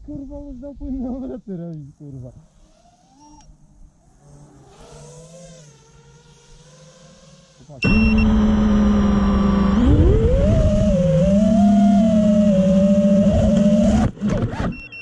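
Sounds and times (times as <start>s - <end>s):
distant engine revving: 4.4s - 14.2s
loud engine running nearby: 6.4s - 14.1s.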